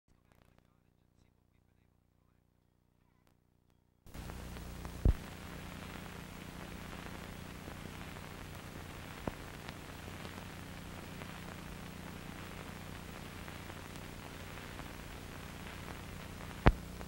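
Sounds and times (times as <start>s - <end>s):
videotape hiss and hum: 0.1s - 3.4s, 4.1s - 17.0s
loud low pop: 5.0s - 5.2s.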